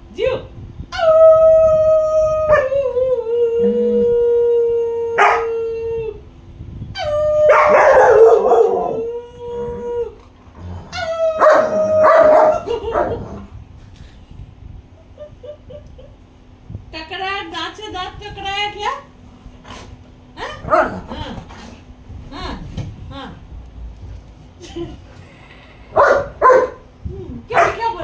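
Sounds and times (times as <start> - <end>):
woman howling: 1.0 - 6.2, 7.0 - 10.2, 10.9 - 13.2
dogs howling: 4.8 - 5.8, 7.0 - 13.4.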